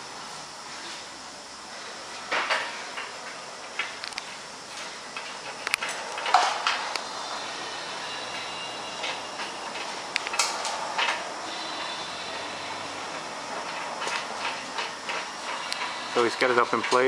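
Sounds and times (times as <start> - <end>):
steel beam scraping: 5.8 - 16.9.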